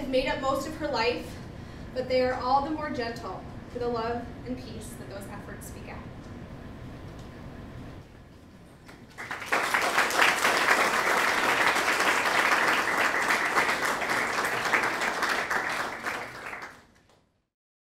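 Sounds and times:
audience applauding: 8.9s - 17.2s.

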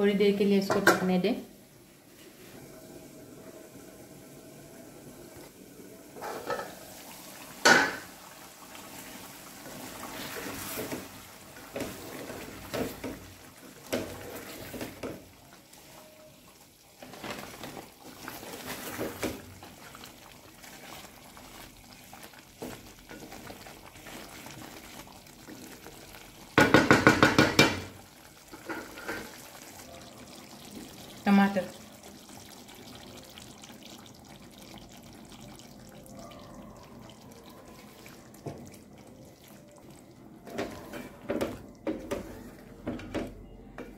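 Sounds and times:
gravy simmering: 0.1s - 43.9s
rattling knocks on pot: 26.6s - 27.9s.

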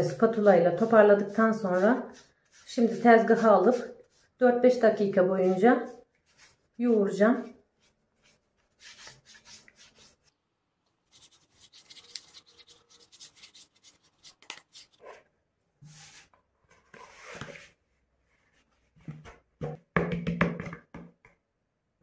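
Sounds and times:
spatula scraping dough in bowl: 0.0s - 10.2s.

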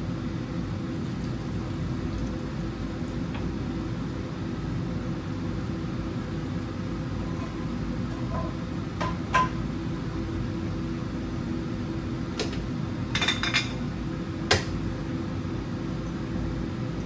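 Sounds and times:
steady low hum: 0.0s - 17.0s
kitchenware clinking: 13.2s - 13.8s.

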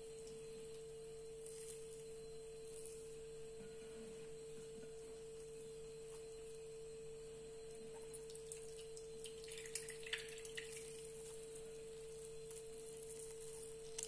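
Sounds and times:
faint steady hum: 0.0s - 14.0s
liquid dripping into glass bowl: 8.0s - 11.2s.

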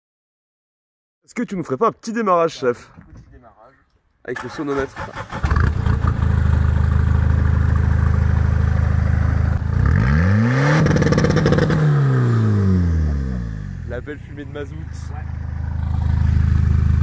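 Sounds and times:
diesel engine idling and revving: 4.7s - 17.0s.

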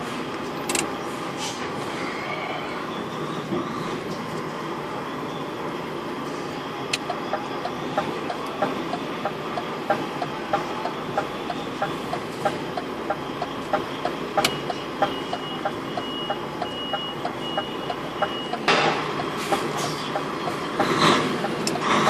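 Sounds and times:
high electronic beep: 6.5s - 21.9s
turn signal relay ticking: 6.9s - 22.0s.

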